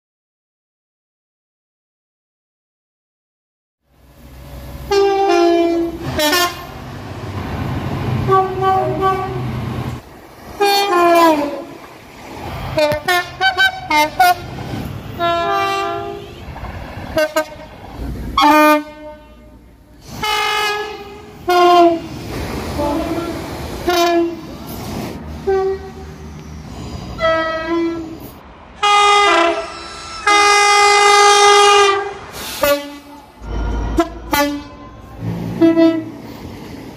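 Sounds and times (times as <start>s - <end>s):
rumble of passing trains: 3.9s - 36.9s
train horn blasts: 4.9s - 6.8s, 8.2s - 9.5s, 10.6s - 11.8s, 12.8s - 14.5s, 15.2s - 16.5s, 17.1s - 17.7s, 18.4s - 19.6s, 20.2s - 22.1s, 22.8s - 24.5s, 25.4s - 26.2s, 27.2s - 36.2s.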